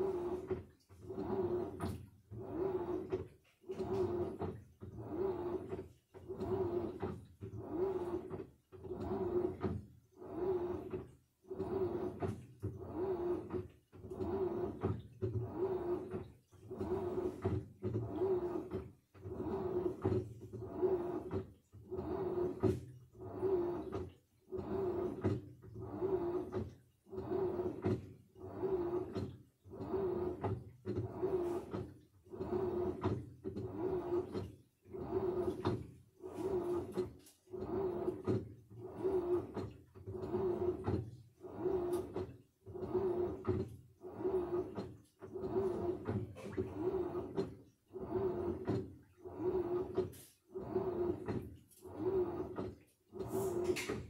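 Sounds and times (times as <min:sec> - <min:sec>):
washing machine drum sloshing: 0:00.0 - 0:54.0.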